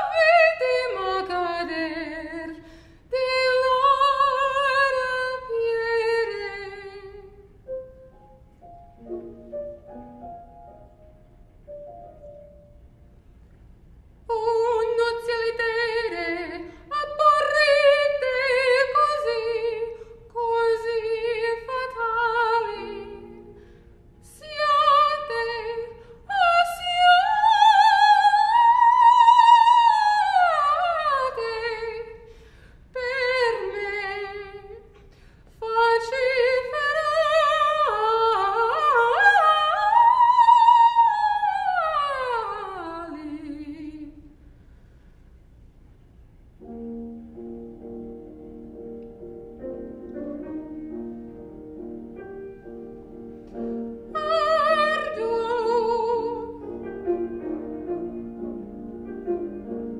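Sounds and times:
woman singing operatically: 0.0s - 7.4s, 14.3s - 23.4s, 24.2s - 32.2s, 32.9s - 34.8s, 35.6s - 44.2s, 54.1s - 56.6s
singer breathing: 2.6s - 3.1s, 23.5s - 24.2s, 32.2s - 32.9s, 35.0s - 35.6s, 44.4s - 45.4s.

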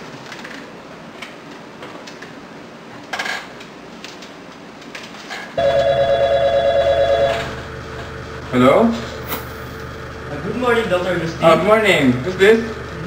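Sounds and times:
electronic telephone ringing: 5.6s - 8.1s.

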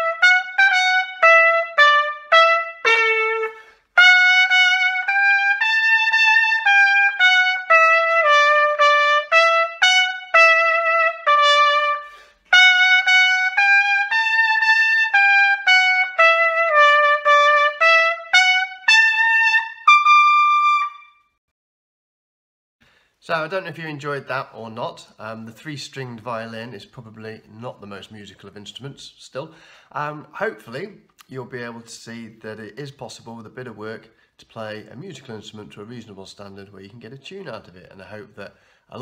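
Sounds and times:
piccolo trumpet melody: 0.0s - 21.4s.

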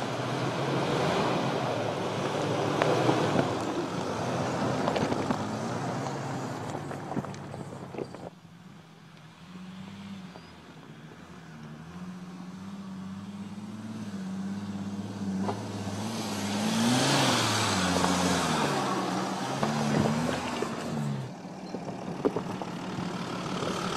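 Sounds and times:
tyres crunching over rocks: 2.2s - 8.3s
engine pulling at low revs: 11.2s - 23.9s.

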